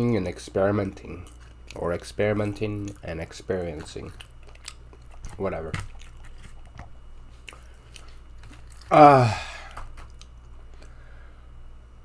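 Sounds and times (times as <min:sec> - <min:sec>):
man chewing food: 0:00.0 - 0:11.2
loud vocal groan: 0:08.9 - 0:09.7.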